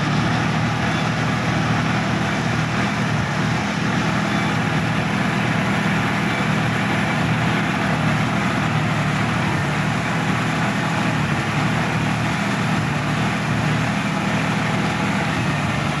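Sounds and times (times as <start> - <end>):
tractor diesel engine running: 0.0 - 16.0.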